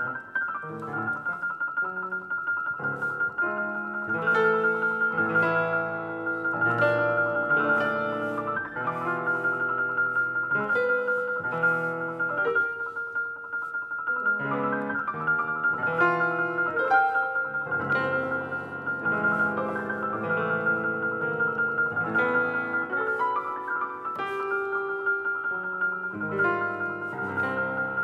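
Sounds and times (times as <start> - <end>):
grand piano chords: 0.0 - 28.0.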